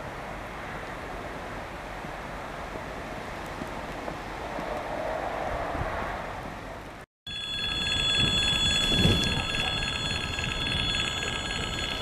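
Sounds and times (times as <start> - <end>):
level crossing bell ringing: 7.3 - 12.0.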